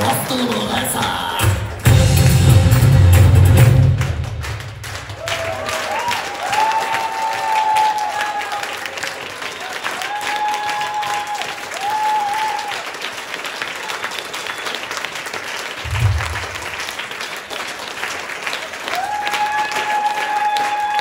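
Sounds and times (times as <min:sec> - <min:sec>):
audience applauding: 0:00.0 - 0:21.0
low thump: 0:15.9 - 0:16.7.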